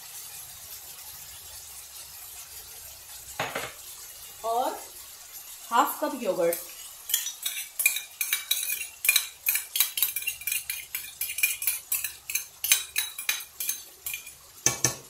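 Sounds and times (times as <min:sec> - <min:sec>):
metal spoon scraping frying pan: 0:06.4 - 0:15.0.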